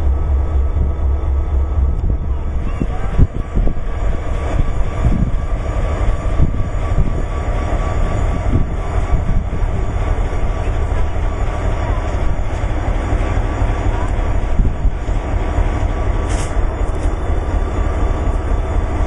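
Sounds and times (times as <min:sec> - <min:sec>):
diesel locomotive engine rumble: 0:00.0 - 0:19.0.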